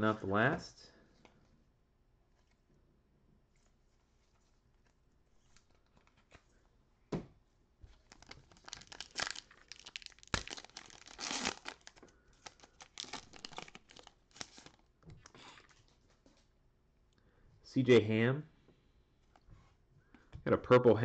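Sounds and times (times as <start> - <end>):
foil wrapper tearing and crinkling: 8.0 - 14.9.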